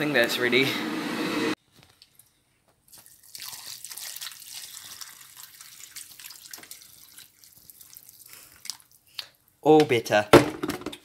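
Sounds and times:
water pouring into plastic bowl: 0:02.9 - 0:09.0.

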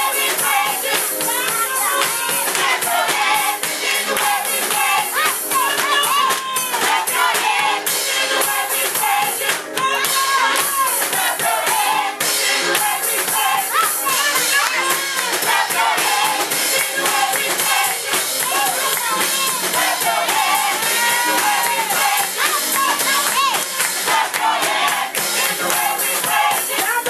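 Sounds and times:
women singing gospel song: 0:00.0 - 0:27.0
hands clapping in time: 0:00.3 - 0:07.8, 0:09.4 - 0:11.9, 0:12.7 - 0:27.0.

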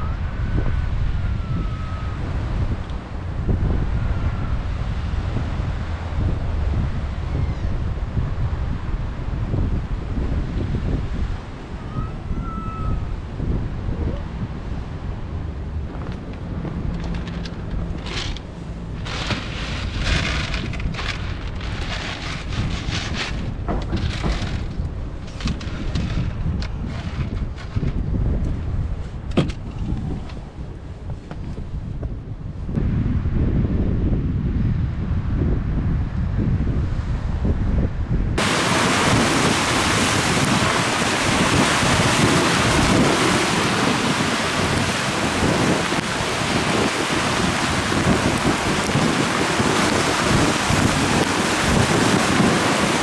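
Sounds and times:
rain: 0:00.0 - 0:27.7, 0:38.4 - 0:53.0
wind rumble on microphone: 0:00.0 - 0:53.0
waves breaking on rocky shore: 0:15.8 - 0:27.9, 0:38.4 - 0:53.0
dry cat food rattling in tub: 0:19.0 - 0:24.7.

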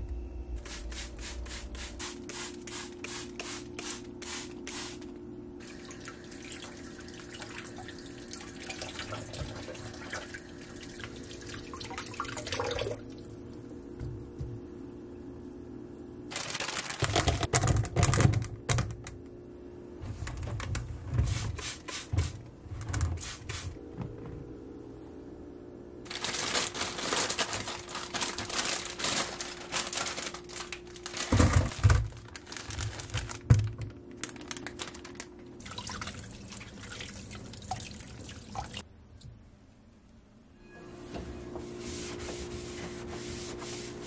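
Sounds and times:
tap water running into colander: 0:05.6 - 0:13.2, 0:35.6 - 0:38.8.

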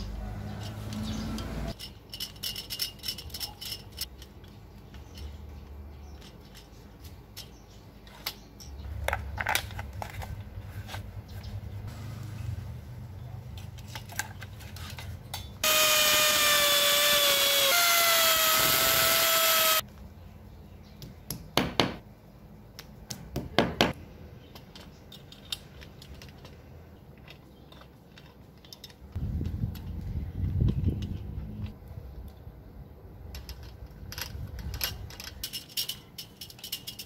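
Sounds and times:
power drill boring into masonry: 0:15.6 - 0:19.8.

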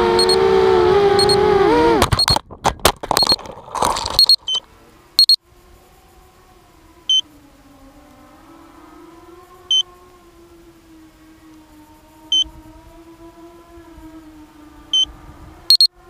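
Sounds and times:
drone motor whine: 0:00.0 - 0:02.0, 0:06.0 - 0:16.0
short high electronic beep: 0:01.2 - 0:01.4, 0:04.2 - 0:04.6.

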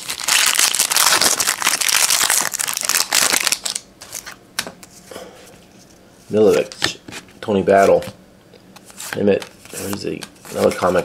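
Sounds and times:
card pack wrapper crinkling: 0:00.0 - 0:04.4.

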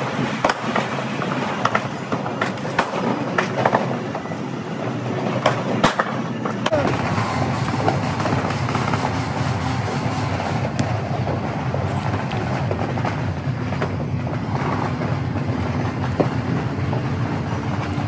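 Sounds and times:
distant fireworks rumble: 0:00.0 - 0:04.3, 0:05.0 - 0:18.0
fireworks pops and crackles: 0:05.8 - 0:09.2, 0:10.0 - 0:17.2.

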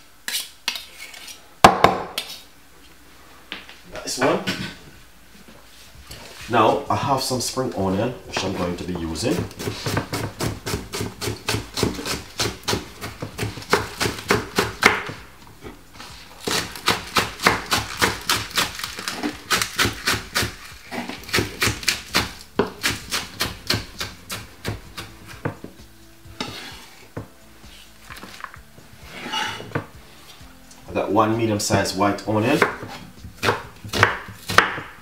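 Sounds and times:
knife chopping on wooden board: 0:09.3 - 0:15.2, 0:16.4 - 0:25.7, 0:32.6 - 0:35.0.

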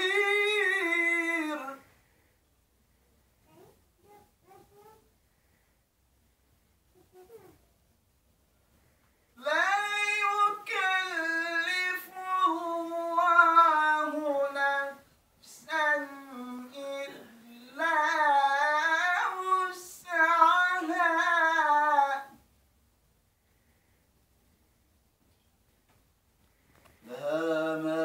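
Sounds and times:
man reciting melodically: 0:00.0 - 0:02.0, 0:09.4 - 0:22.5, 0:27.0 - 0:28.0.

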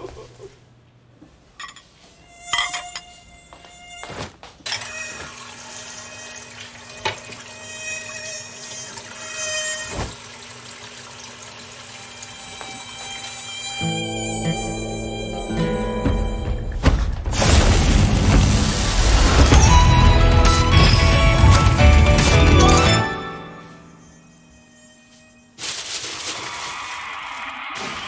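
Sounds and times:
mosquito whining: 0:02.2 - 0:04.2, 0:06.1 - 0:09.9, 0:12.0 - 0:16.8, 0:19.5 - 0:25.6
water running in a sink: 0:04.8 - 0:13.7.

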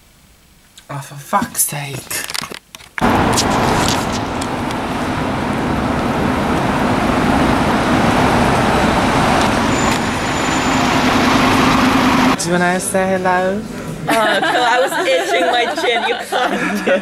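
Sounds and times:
bus engines humming: 0:03.0 - 0:15.9
street traffic noise: 0:03.0 - 0:16.9.

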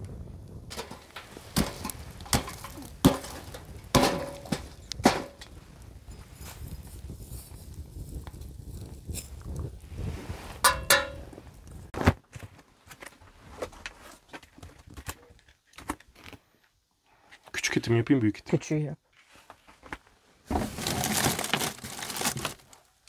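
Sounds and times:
wooden knocks and cracks: 0:00.7 - 0:05.6, 0:19.8 - 0:22.7.

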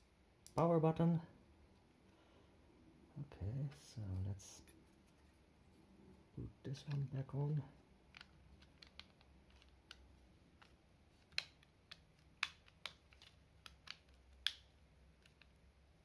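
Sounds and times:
plastic case clicks and snaps: 0:08.1 - 0:15.5.

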